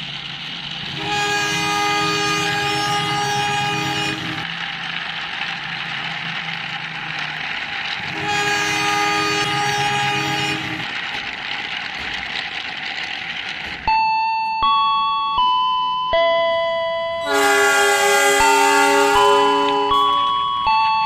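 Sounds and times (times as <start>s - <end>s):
train rumbling past: 0.0s - 13.9s, 17.2s - 20.8s
locomotive air horn: 0.9s - 4.4s, 8.0s - 10.8s, 17.2s - 20.4s.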